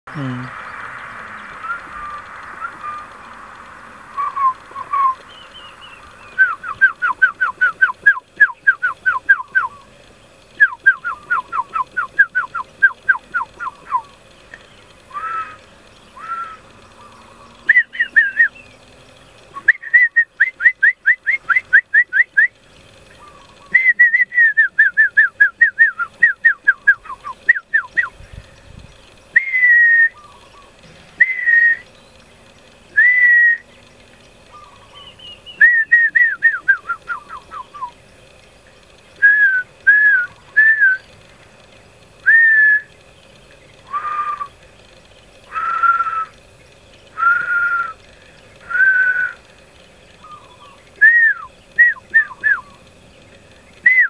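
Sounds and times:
man whistling: 1.6 - 3.1, 4.1 - 9.7, 10.6 - 14.0, 17.7 - 18.6, 19.6 - 22.6, 23.7 - 28.1, 29.4 - 30.2, 31.2 - 31.8, 33.0 - 33.6, 35.6 - 37.9, 39.2 - 41.0, 42.2 - 42.9, 43.9 - 44.5, 45.6 - 46.3, 47.2 - 48.0, 48.6 - 49.4, 51.0 - 52.6.

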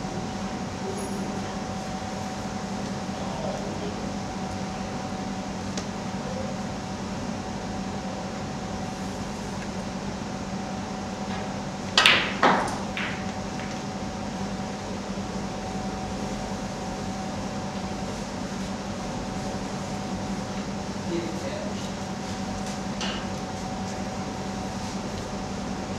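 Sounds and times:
steady room hum: 0.0 - 25.9
snooker balls clicking: 11.3 - 14.0.

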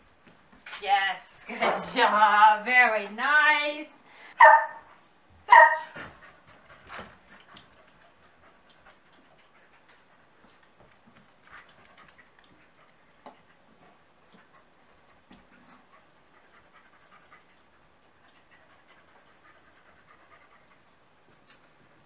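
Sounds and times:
dog panting faintly: 4.9 - 22.0
light ticks and taps: 7.3 - 14.6.

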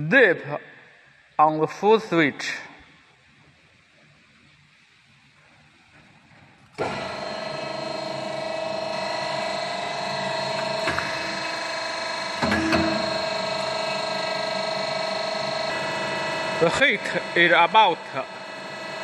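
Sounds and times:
hydraulic pump motor whining: 6.8 - 19.0.

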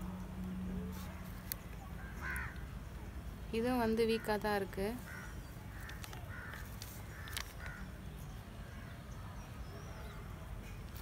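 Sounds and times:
crows cawing: 2.0 - 2.7, 5.0 - 7.9.

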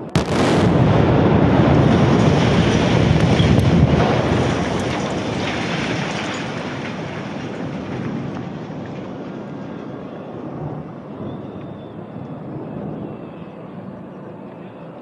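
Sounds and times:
building collapsing rumble: 0.0 - 11.4.

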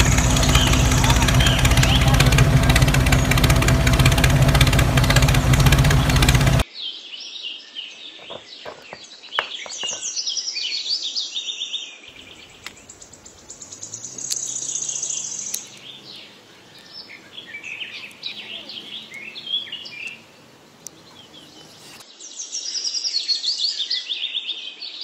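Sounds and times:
loud engine-like running noise: 0.0 - 6.6, 12.1 - 22.0
birds chirping and trilling: 0.0 - 22.5
sharp clicks: 12.2 - 22.0.

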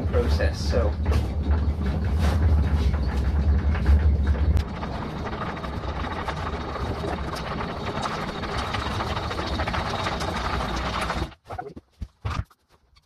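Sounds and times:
ball mill grinding clatter: 0.0 - 11.4
low motor hum: 0.0 - 11.4.

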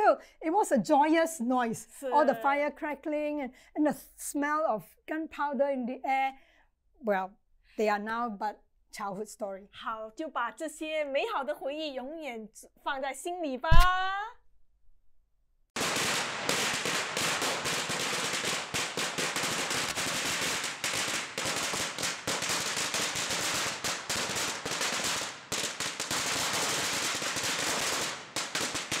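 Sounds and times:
firecrackers banging rapidly: 15.8 - 29.0.

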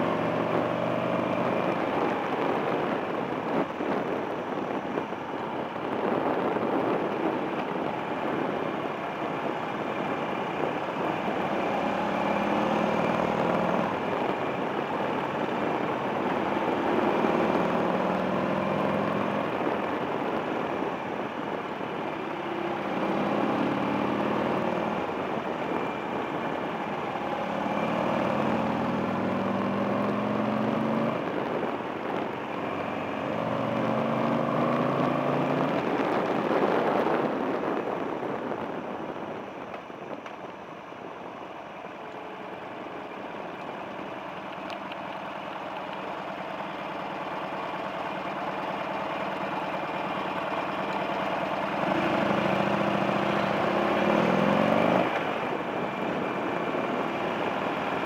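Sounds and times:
wind noise: 0.0 - 58.0
motorcycle engine revving: 9.3 - 20.4, 22.3 - 31.7, 32.6 - 37.5, 44.0 - 58.0.

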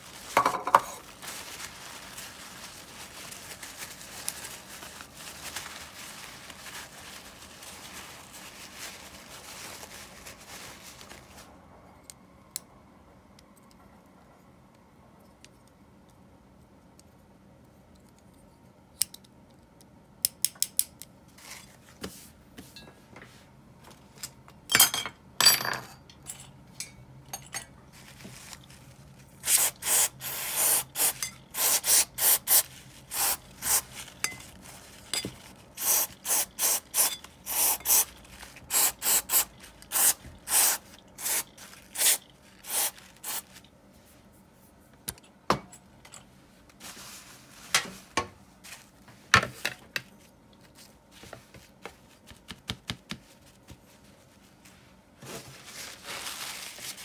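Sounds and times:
sharp clicks of small parts: 19.0 - 21.1.

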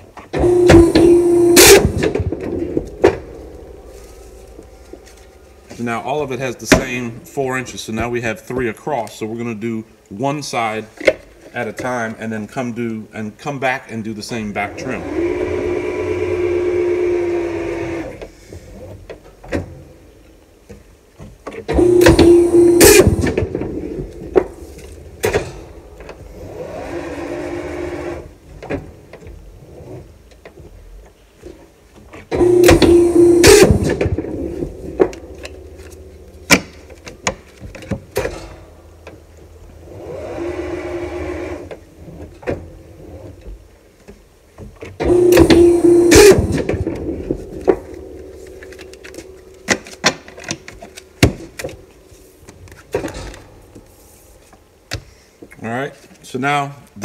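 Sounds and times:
machine hum: 0.0 - 8.2, 14.5 - 55.6
quiet machine whir: 0.0 - 9.0, 21.5 - 55.5
guillotine paper cutter cutting: 0.4 - 2.3, 21.7 - 23.4, 32.4 - 35.2, 45.0 - 51.8.

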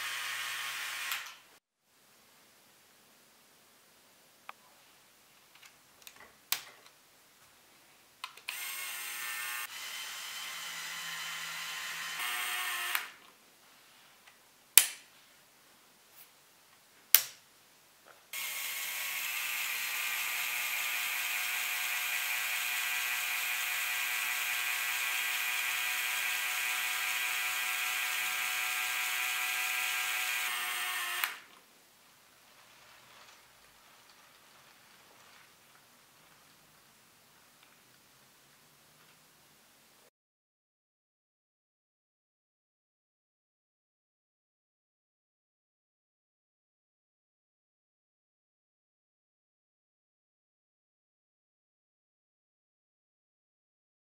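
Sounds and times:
electric toy motor whirring: 0.0 - 1.4, 8.5 - 13.2, 18.4 - 31.5.

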